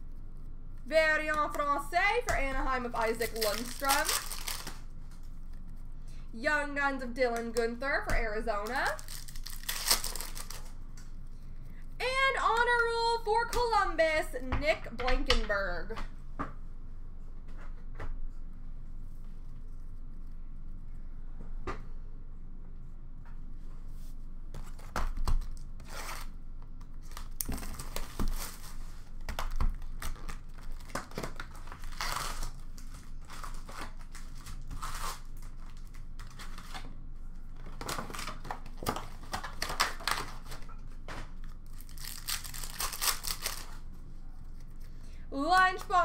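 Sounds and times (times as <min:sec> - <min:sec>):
card wrappers ripping and crinkling: 0:02.3 - 0:05.4, 0:08.6 - 0:10.8, 0:27.0 - 0:36.9, 0:37.6 - 0:43.8.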